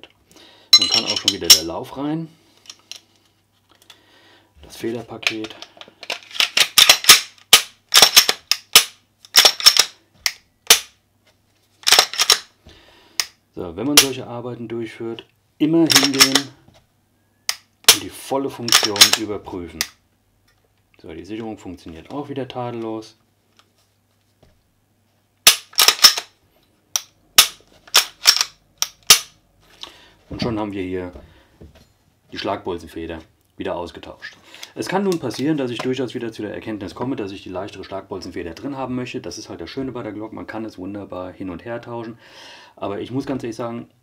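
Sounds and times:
pistol slide clicks and clacks: 5.4s - 11.0s, 11.8s - 12.5s, 15.9s - 16.5s, 18.7s - 19.2s, 25.5s - 26.3s, 26.9s - 29.4s
pistol slide metallic clicks: 25.5s - 26.3s, 27.0s - 29.4s.

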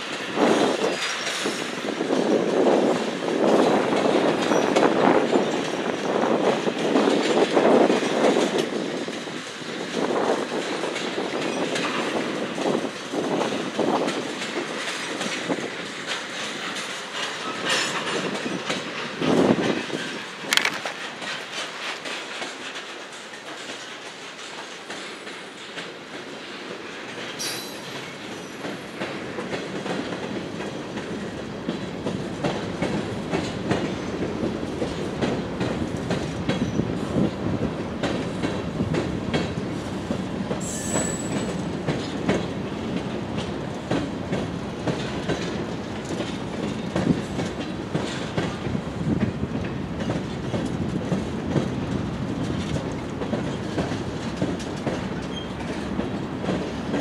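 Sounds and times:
train rumble: 0.0s - 57.0s
train wheels clicking over rail joints: 0.0s - 57.0s
wheel squeal: 55.2s - 55.7s.

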